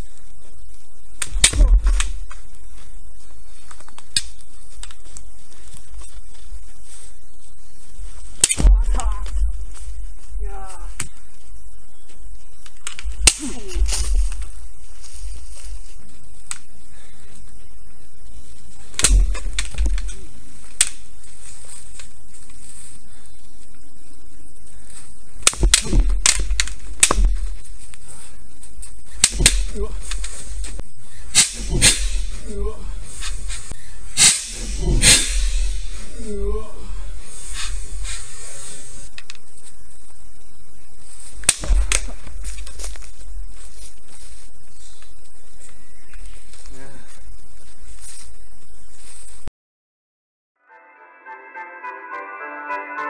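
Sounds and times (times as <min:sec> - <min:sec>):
bamboo swords clacking: 0:12.8 - 0:14.0, 0:29.2 - 0:30.3, 0:31.4 - 0:32.6, 0:34.2 - 0:35.7.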